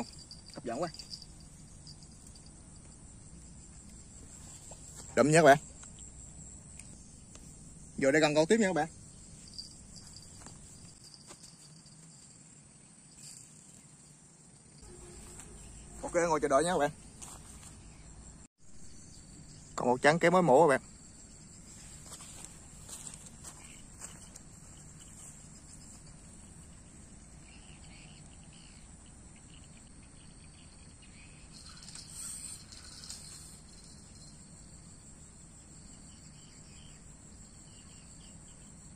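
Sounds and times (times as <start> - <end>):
insects chirping: 0.0 - 38.9.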